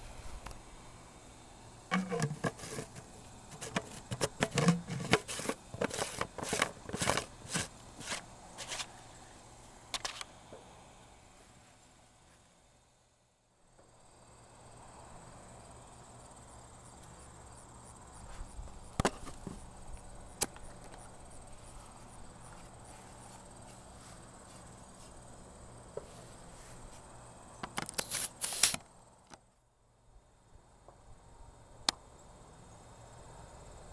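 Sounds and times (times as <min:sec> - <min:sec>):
faint hiss and hum: 0:00.0 - 0:33.9
sharp clicks and knocks: 0:01.9 - 0:07.7.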